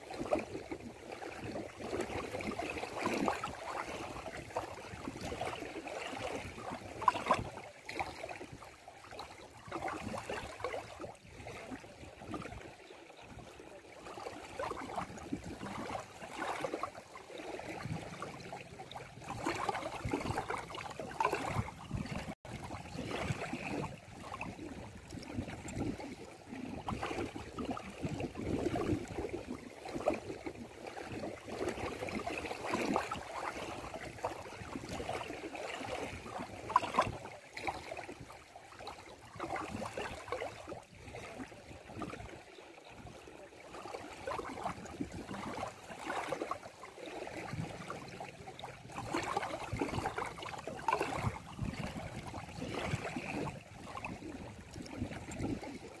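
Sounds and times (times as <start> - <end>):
water lapping at shoreline: 0.0 - 56.0
water splash: 14.0 - 42.4, 43.7 - 56.0.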